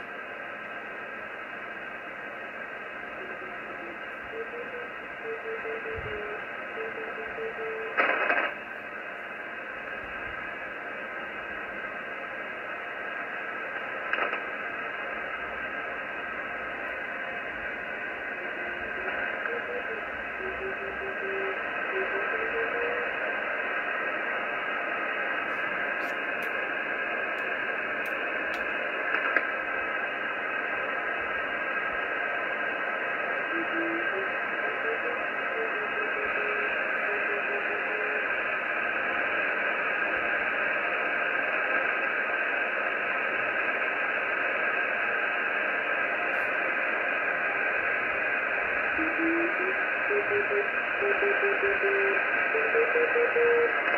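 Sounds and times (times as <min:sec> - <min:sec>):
radio receiver hiss: 0:00.0 - 0:53.9
faint morse beacon tone: 0:49.0 - 0:53.8.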